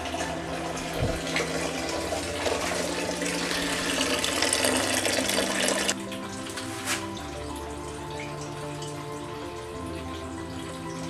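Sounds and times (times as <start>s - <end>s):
liquid draining into metal pot: 0.0s - 7.6s.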